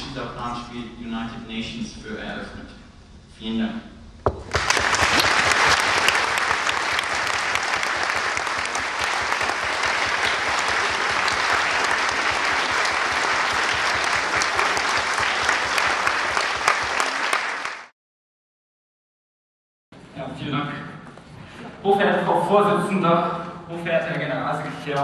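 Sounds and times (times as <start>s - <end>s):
audience applauding: 4.4s - 17.9s.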